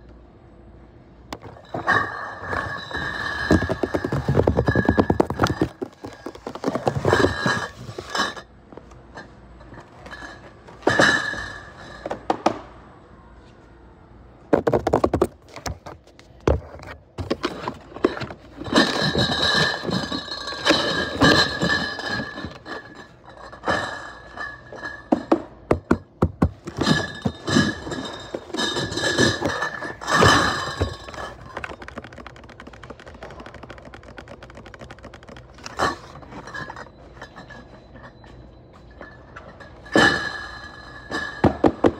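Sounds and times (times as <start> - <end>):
cardboard cases thunking: 2.7 - 7.7, 25.8 - 36.4
cardboard scraping: 2.9 - 8.1, 29.2 - 36.6.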